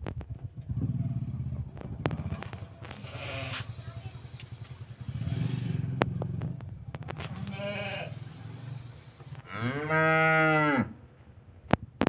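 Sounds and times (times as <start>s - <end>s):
cattle bawling: 2.9s - 3.7s, 7.4s - 8.2s.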